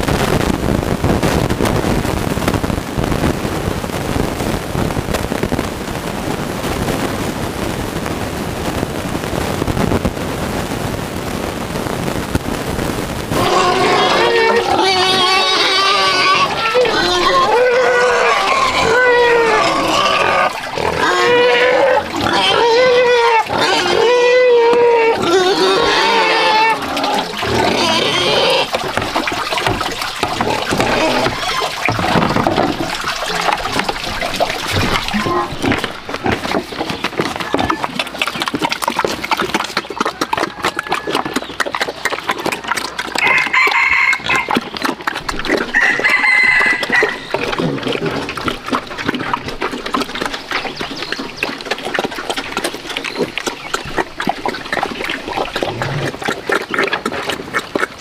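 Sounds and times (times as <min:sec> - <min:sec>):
pigs eating wet smacking: 0:13.2 - 0:58.0
rooster crowing: 0:43.2 - 0:44.5, 0:45.7 - 0:47.3.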